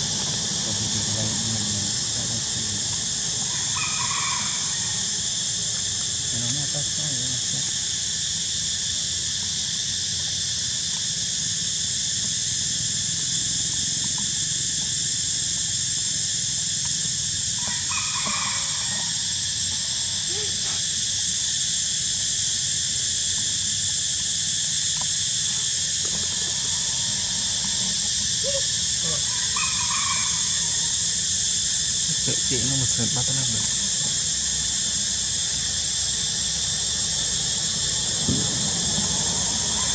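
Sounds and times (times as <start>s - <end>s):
high-pitched insect drone: 0.0s - 39.9s.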